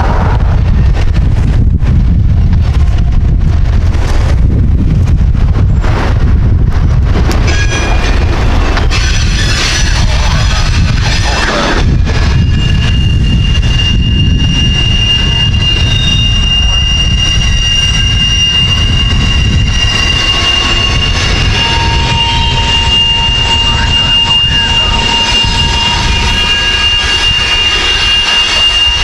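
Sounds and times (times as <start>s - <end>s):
steel wheels rumbling on rail: 0.0s - 29.0s
high wheel squeal: 7.3s - 29.0s
lower wheel squeal: 7.3s - 29.0s.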